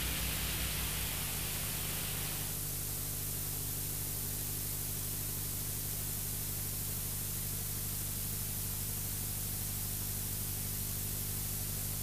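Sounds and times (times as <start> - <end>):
tape hiss: 0.0 - 2.6
low even hum: 0.0 - 2.9.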